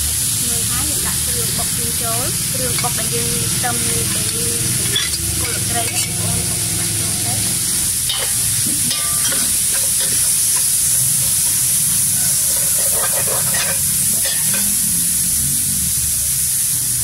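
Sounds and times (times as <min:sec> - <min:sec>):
spice paste sizzling in pot: 0:00.0 - 0:17.0
metal ladle scraping pot: 0:04.1 - 0:07.0, 0:08.1 - 0:14.8.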